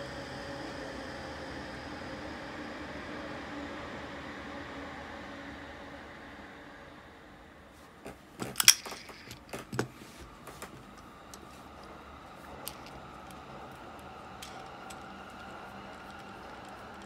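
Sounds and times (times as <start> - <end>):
fishing reel metal clicks: 8.6 - 9.5.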